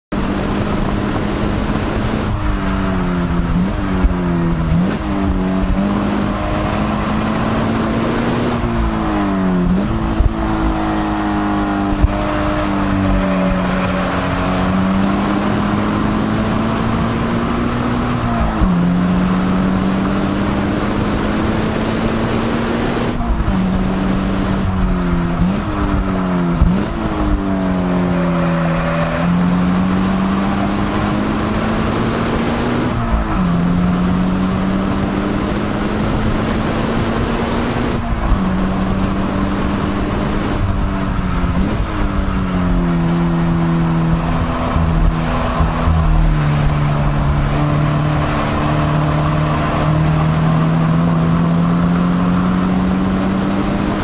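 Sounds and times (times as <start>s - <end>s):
car engine at high revs: 0.0s - 54.0s
wind and road noise: 0.0s - 54.0s.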